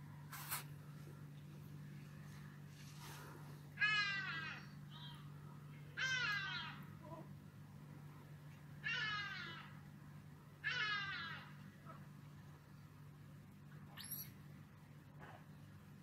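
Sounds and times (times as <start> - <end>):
steady low hum: 0.0 - 16.0
monkey wailing cry: 6.0 - 6.8, 10.6 - 11.6, 14.0 - 14.3.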